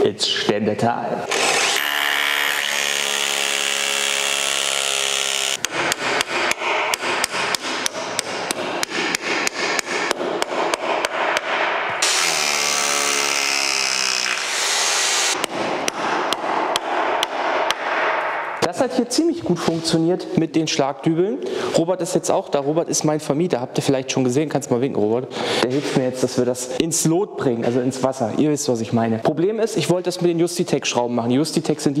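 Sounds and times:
electric drill boring: 1.3 - 7.3, 12.0 - 15.4.

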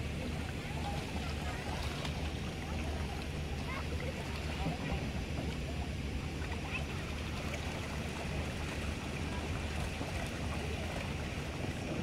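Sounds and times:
paddle wheels splashing water: 0.0 - 12.0
wind rumble on microphone: 7.1 - 12.0.

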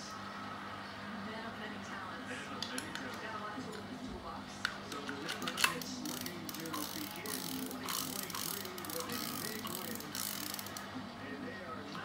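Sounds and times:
fishing reel clicking: 5.3 - 10.8.

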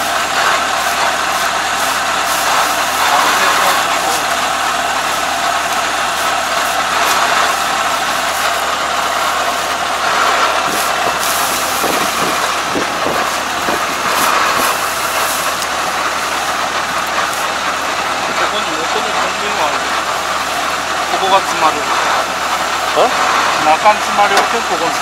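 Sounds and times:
straw rustling: 0.0 - 18.6
engine idling: 0.0 - 25.0.

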